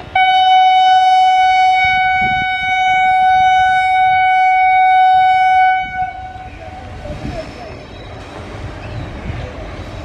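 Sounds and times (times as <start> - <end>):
train rumble: 0.0 - 10.0
locomotive horn blast: 0.1 - 6.6.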